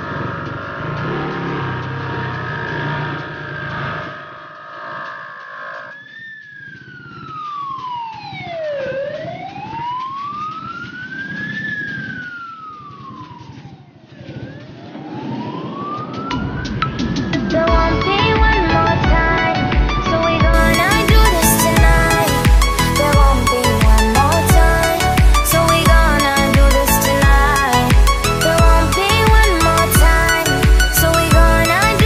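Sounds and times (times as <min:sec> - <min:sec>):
ambulance siren wailing: 0:00.0 - 0:04.2, 0:05.9 - 0:32.0
motorcycle engine running: 0:00.0 - 0:04.3, 0:20.4 - 0:32.0
road noise: 0:00.0 - 0:32.0.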